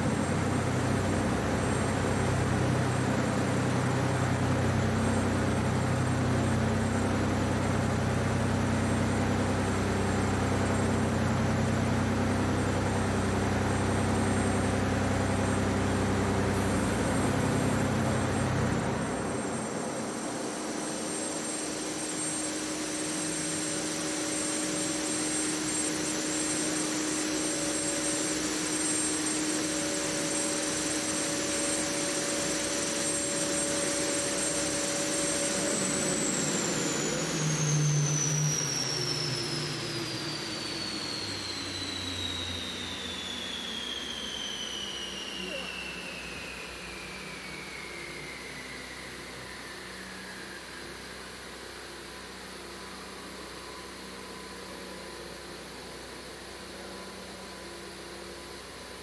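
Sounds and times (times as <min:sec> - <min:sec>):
high thin whine: 0:14.0 - 0:58.9.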